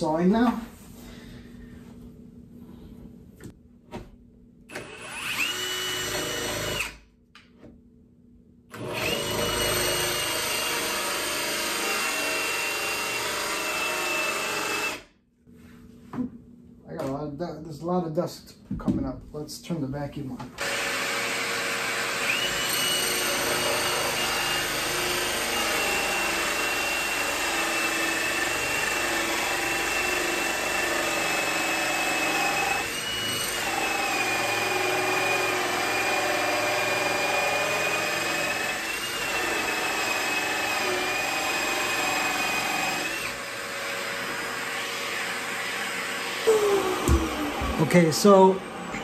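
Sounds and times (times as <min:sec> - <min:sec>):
drill motor whining under load: 0:04.7 - 0:07.0, 0:08.7 - 0:15.1, 0:20.6 - 0:49.0
vacuum running: 0:45.3 - 0:49.0.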